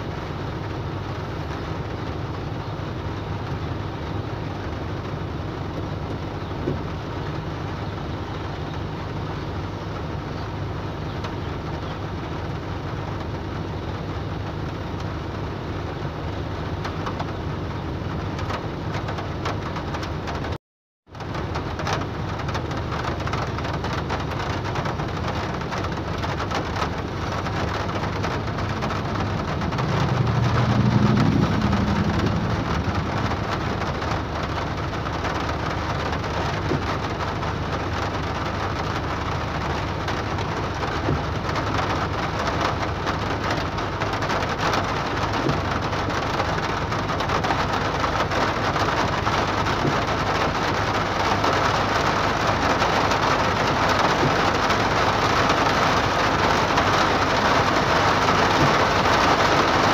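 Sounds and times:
hard rain on car roof: 0.0s - 59.9s
low rumble: 27.4s - 36.1s.

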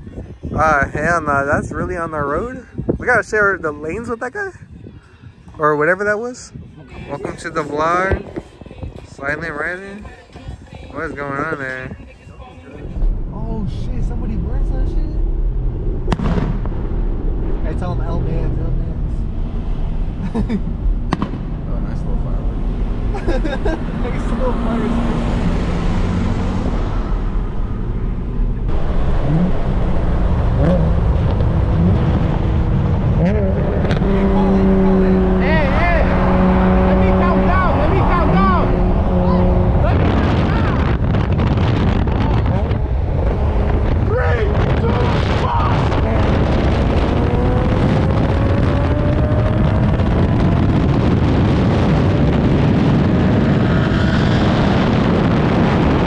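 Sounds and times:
wind noise on microphone: 0.0s - 56.0s
road noise inside car: 11.9s - 56.0s
car engine accelerating: 12.8s - 56.0s.

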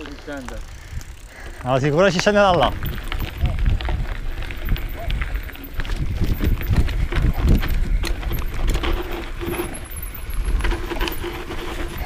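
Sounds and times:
mountain bike rattling: 0.0s - 12.0s
wind on microphone: 2.4s - 12.0s.

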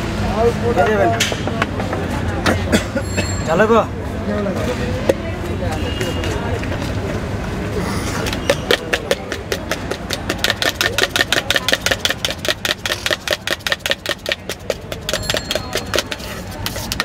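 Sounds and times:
chickpeas rattling in plastic mug: 8.6s - 17.0s.

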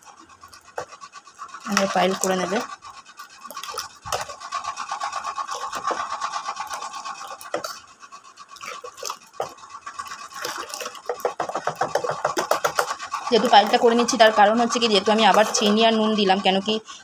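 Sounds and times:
water pouring into pulp: 3.4s - 7.8s, 8.5s - 13.8s.

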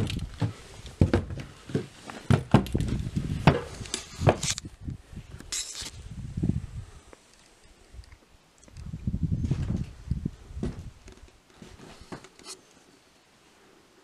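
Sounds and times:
footsteps on wooden floorboards: 0.0s - 3.7s.

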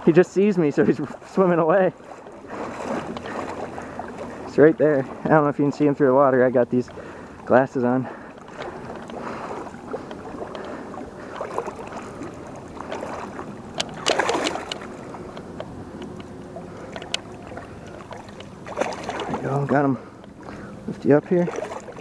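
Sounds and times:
water sloshing from wading: 0.0s - 22.0s
fish thrashing at surface: 8.5s - 15.2s, 16.8s - 19.7s.

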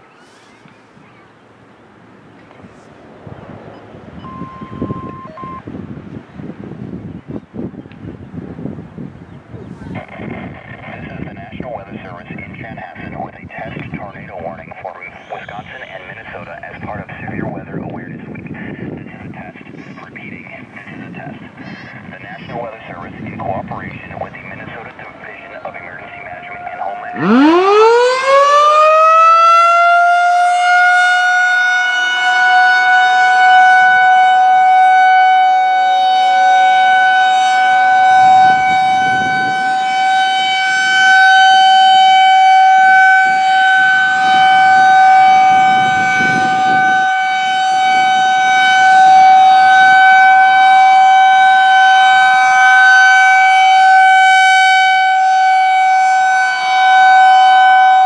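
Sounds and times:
rotating siren wailing: 3.2s - 5.7s, 14.9s - 16.9s, 21.4s - 58.0s.

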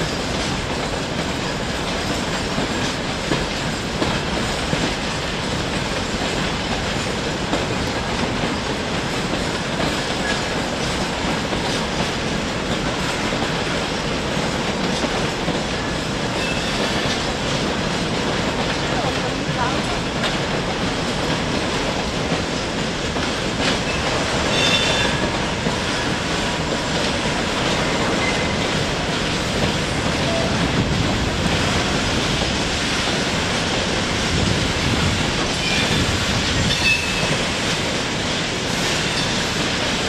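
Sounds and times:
train wheels clattering: 0.0s - 40.0s
high wheel squeals: 23.9s - 25.1s.

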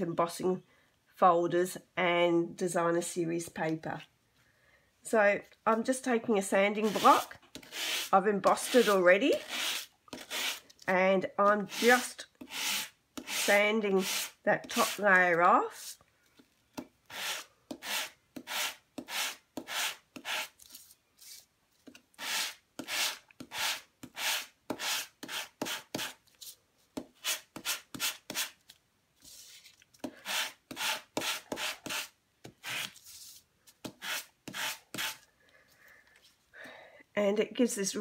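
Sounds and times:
sanding block rubbing paper: 6.8s - 10.6s, 11.6s - 15.0s, 17.1s - 20.6s, 30.2s - 35.2s.

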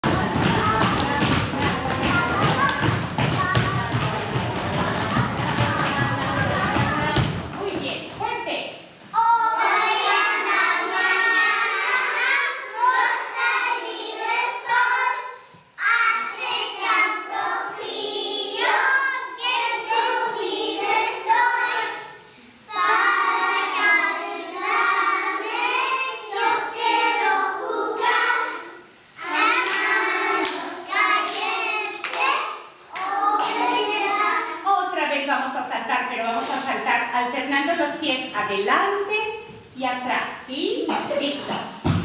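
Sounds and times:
children singing: 0.0s - 7.4s, 9.2s - 34.6s.

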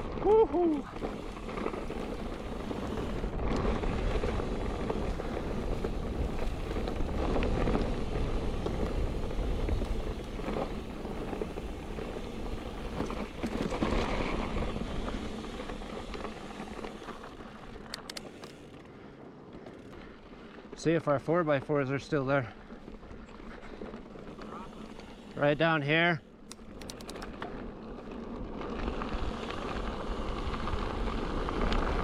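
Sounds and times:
bike tyres rolling over dirt: 0.0s - 32.0s
sharp clicks: 17.8s - 18.6s, 26.4s - 27.5s.

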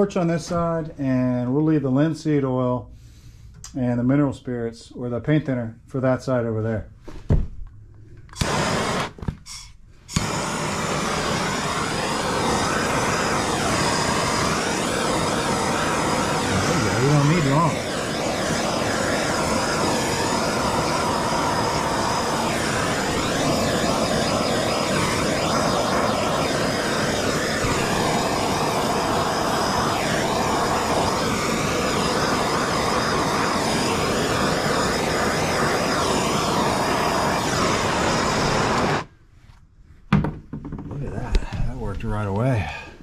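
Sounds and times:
gas torch hissing: 8.3s - 39.1s.

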